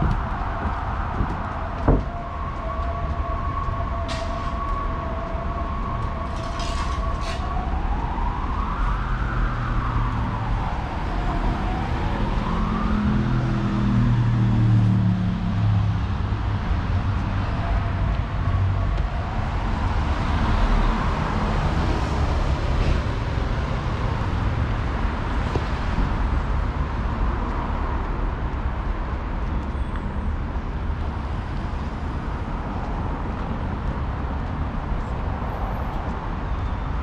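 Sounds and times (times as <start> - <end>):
distant emergency siren wailing: 0.0 - 26.9
street traffic: 0.0 - 37.0.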